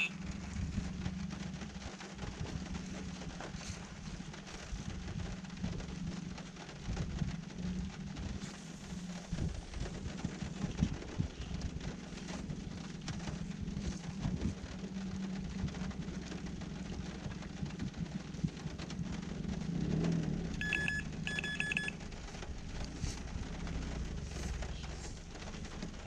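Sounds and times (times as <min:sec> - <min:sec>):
steady rain: 0:00.0 - 0:26.0
rapid electronic beeping: 0:20.6 - 0:22.0.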